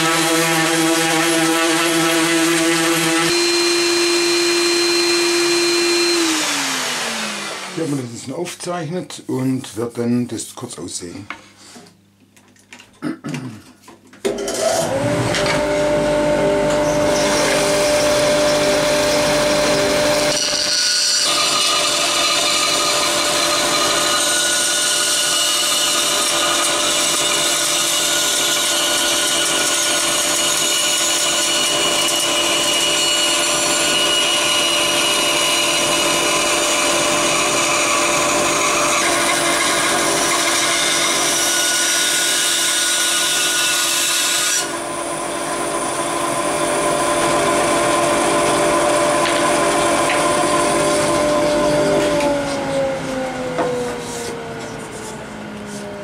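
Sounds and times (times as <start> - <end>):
saw blade cutting wood: 0.0 - 8.5, 14.3 - 56.0
band saw humming: 0.0 - 10.2, 14.4 - 56.0.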